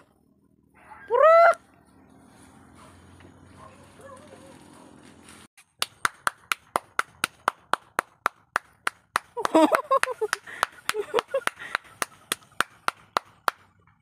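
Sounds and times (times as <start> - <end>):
faint outdoor background: 0.0 - 14.0
fast hand claps: 5.8 - 13.7.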